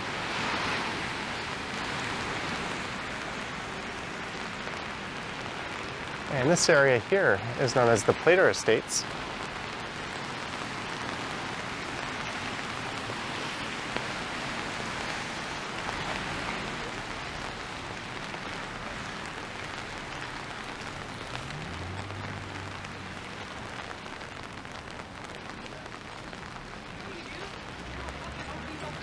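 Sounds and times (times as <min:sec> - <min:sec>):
rain on wet street: 0:00.0 - 0:29.0.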